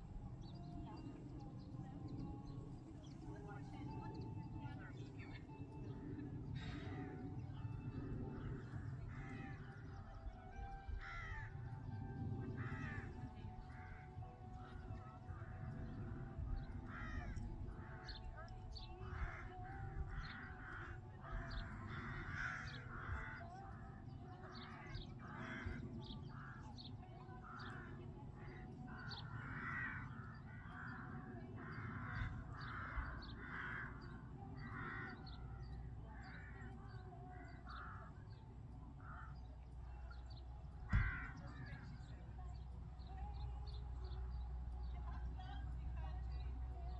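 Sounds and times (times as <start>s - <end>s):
crows cawing: 11.0s - 11.6s, 12.6s - 15.8s, 16.7s - 18.3s, 19.0s - 26.8s, 27.4s - 36.7s, 37.3s - 38.4s, 39.0s - 39.4s, 40.9s - 41.9s.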